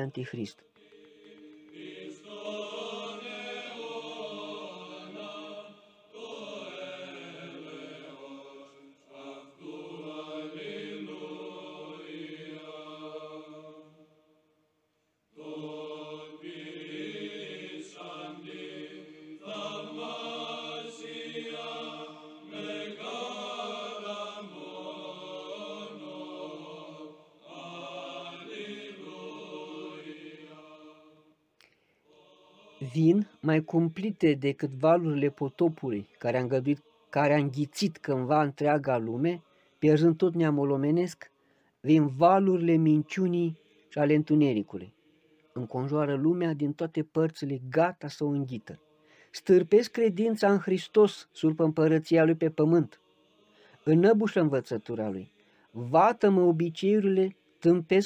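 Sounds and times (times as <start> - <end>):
voices chanting long held notes: 0.8 - 14.4, 15.3 - 31.4, 32.0 - 34.1, 35.0 - 38.0, 42.9 - 43.9, 52.6 - 54.3.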